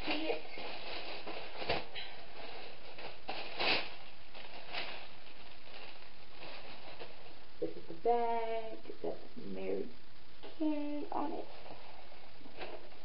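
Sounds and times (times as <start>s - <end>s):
plastic wrapping crinkling: 0.0s - 7.4s.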